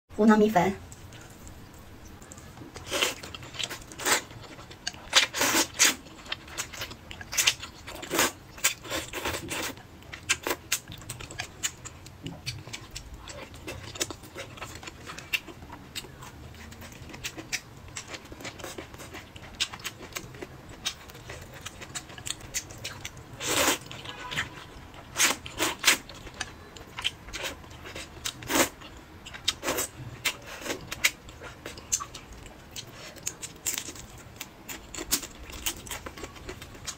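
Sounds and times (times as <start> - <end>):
wet chewing: 0.9 - 36.9.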